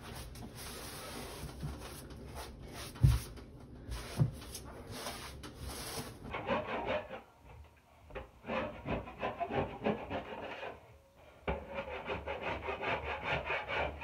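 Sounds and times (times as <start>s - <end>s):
sponge rubbing on wall: 0.0s - 7.2s.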